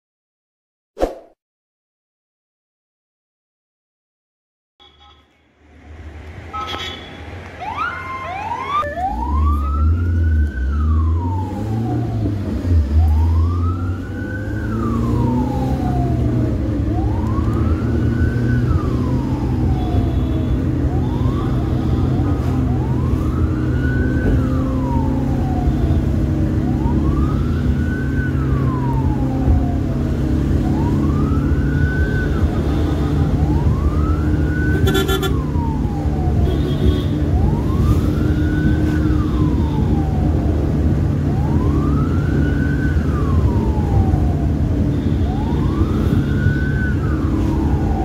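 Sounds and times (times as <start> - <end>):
ambulance siren wailing: 6.5 - 48.0.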